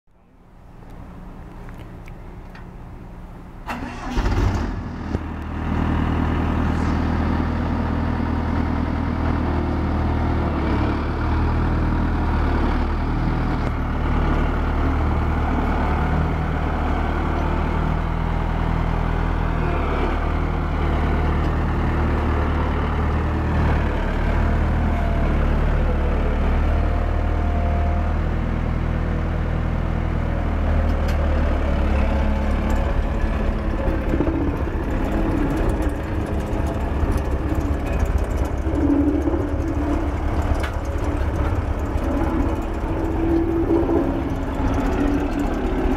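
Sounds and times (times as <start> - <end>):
engine cranking and running: 3.6 - 18.7, 30.8 - 45.9.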